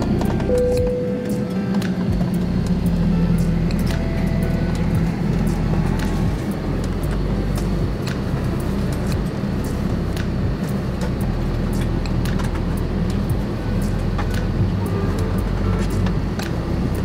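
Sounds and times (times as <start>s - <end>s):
airliner cabin rumble: 0.0s - 17.0s.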